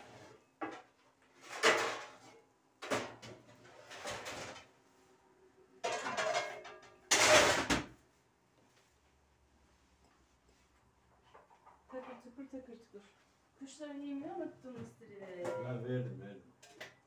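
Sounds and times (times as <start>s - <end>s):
kitchen rustling and clatter: 0.0s - 5.2s, 5.8s - 8.2s, 9.7s - 13.4s.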